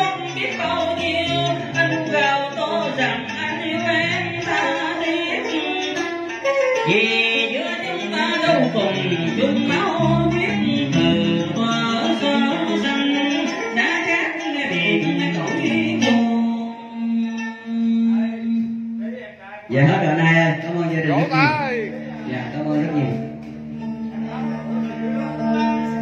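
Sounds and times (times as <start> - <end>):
plucked strings: 0.0 - 26.0
man singing: 6.8 - 13.8, 14.4 - 19.1, 19.7 - 23.4.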